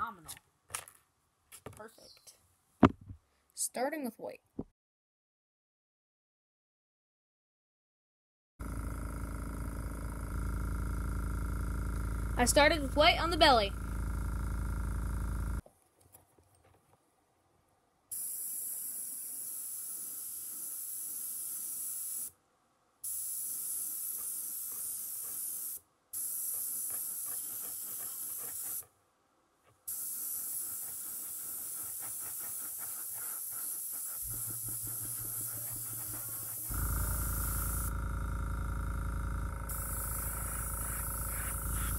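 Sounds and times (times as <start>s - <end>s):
low steady hum: 8.6s - 15.6s, 34.3s - 41.9s
airbrush hissing: 18.1s - 22.3s, 23.1s - 28.9s, 29.9s - 38.0s, 39.7s - 41.9s.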